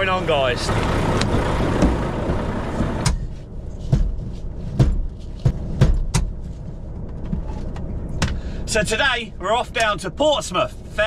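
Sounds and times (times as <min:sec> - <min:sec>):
steady low rumble: 0:00.0 - 0:11.0
knocks inside cab: 0:01.8 - 0:03.3, 0:04.8 - 0:06.4.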